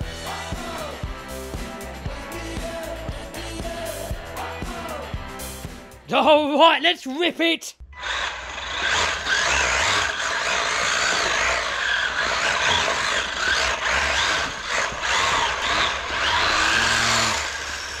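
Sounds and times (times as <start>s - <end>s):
rc car motor whining: 8.0s - 18.0s.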